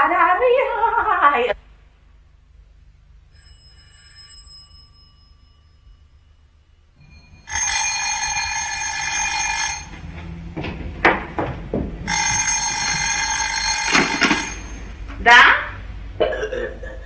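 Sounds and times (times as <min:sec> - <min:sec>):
telephone bell ringing: 0:03.3 - 0:06.4, 0:07.0 - 0:10.4, 0:12.1 - 0:15.0.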